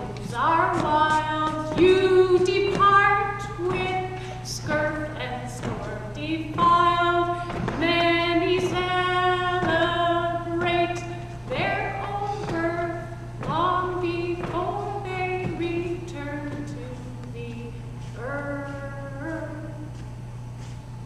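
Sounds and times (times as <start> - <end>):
woman singing unaccompanied: 0.0 - 20.0
steady low hum: 0.0 - 21.0.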